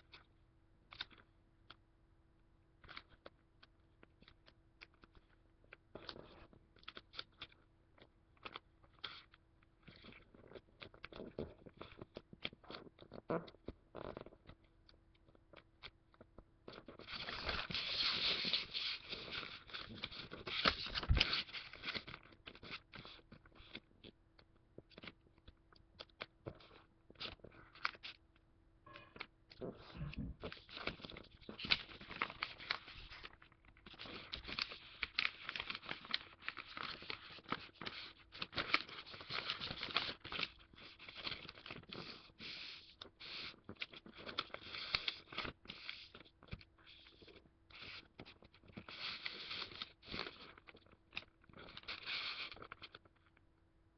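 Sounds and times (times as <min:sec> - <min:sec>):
paper being folded and creased: 0:06.0 - 0:07.6, 0:08.4 - 0:14.6, 0:16.7 - 0:23.9, 0:24.9 - 0:25.2, 0:26.0 - 0:28.2, 0:29.6 - 0:53.4.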